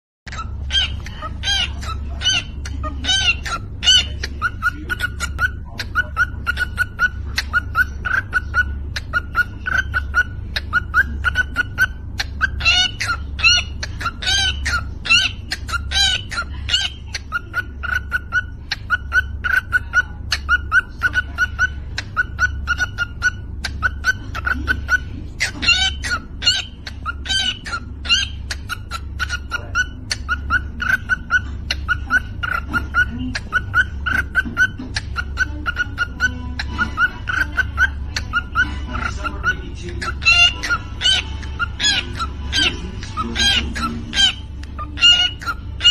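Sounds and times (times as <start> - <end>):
cockatiel clicking chirps: 0.3 - 45.9
bird whistled notes: 17.3 - 45.9.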